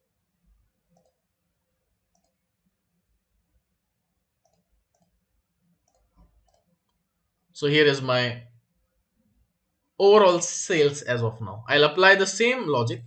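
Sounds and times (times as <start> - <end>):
computer mouse clicks: 0.9 - 1.3, 2.1 - 2.5, 4.4 - 7.1.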